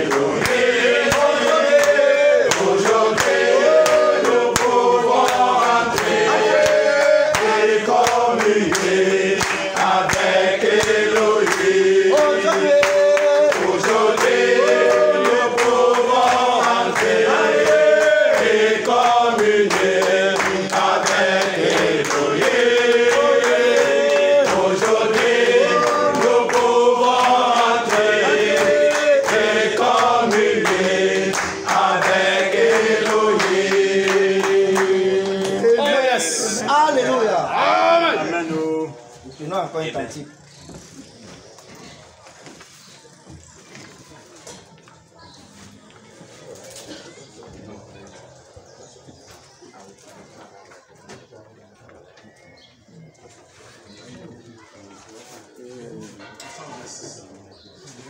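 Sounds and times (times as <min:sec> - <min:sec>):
rhythmic hand clapping: 0:00.0 - 0:36.5
congregation singing: 0:00.0 - 0:39.8.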